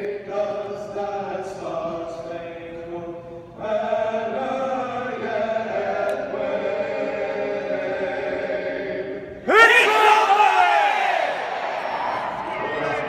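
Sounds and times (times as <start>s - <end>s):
vocal quartet singing a cappella: 0.0s - 9.8s.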